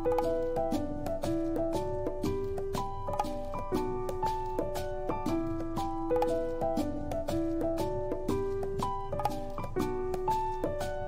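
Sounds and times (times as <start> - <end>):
gentle instrumental music: 0.0 - 11.0
soft beats: 0.0 - 11.0.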